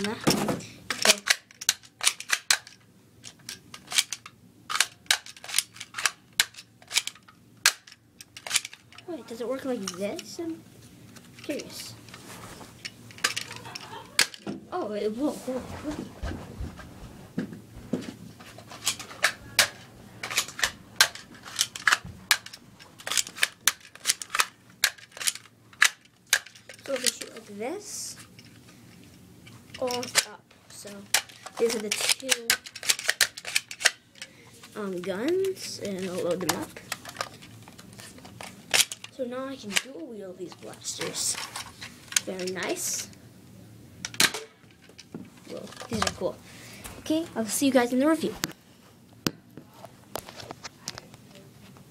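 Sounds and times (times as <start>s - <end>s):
toy blaster plastic clicks: 0.9s - 8.8s, 31.1s - 34.3s
toy blaster clicking and snapping: 0.9s - 9.0s, 13.1s - 14.4s, 18.8s - 27.4s, 29.7s - 34.3s.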